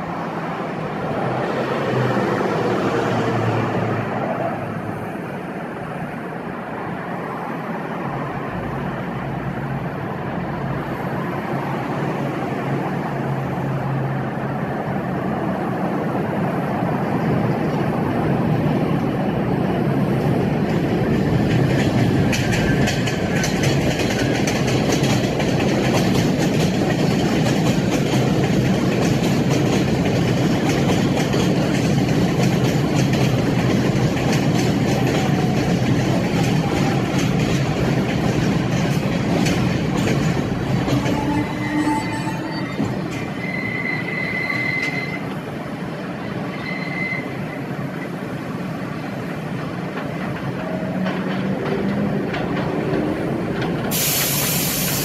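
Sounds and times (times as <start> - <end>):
subway train running: 0.0 - 55.0
wheels clicking on rail joints: 17.2 - 55.0.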